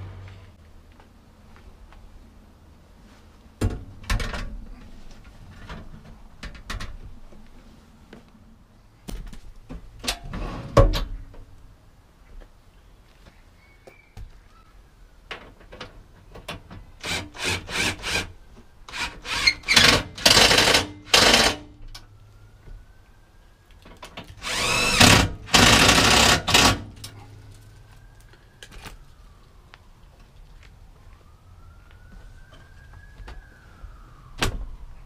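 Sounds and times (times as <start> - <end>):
cordless drill spinning: 17.0 - 18.3, 18.9 - 21.5, 24.4 - 26.7.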